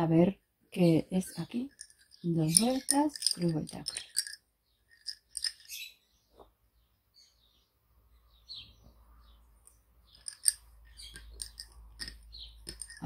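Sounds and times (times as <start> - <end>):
lace bobbins clicking: 1.7 - 5.8, 10.1 - 13.0.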